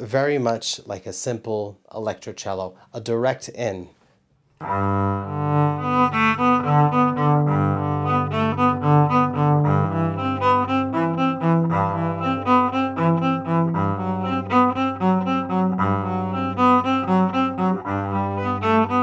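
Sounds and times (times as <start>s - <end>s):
bowed electric cello: 4.6s - 19.0s.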